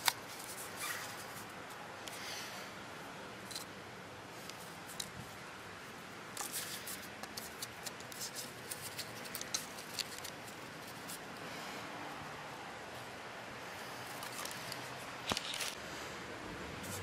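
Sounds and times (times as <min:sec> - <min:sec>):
plastic clicks and scrapes: 0:06.4 - 0:11.2.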